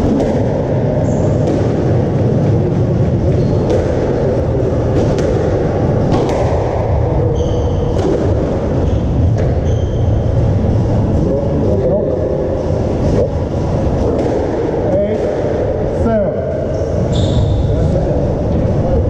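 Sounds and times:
loud low rumble: 0:00.0 - 0:19.0
squash ball knocks: 0:01.4 - 0:01.9, 0:03.6 - 0:04.2, 0:04.9 - 0:06.8, 0:07.9 - 0:08.5.

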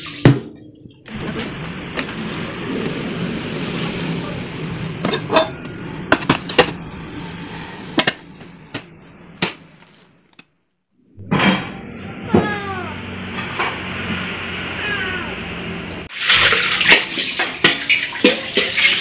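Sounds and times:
kitchen items clinking: 0:05.0 - 0:06.8
cat meowing: 0:14.8 - 0:15.4.

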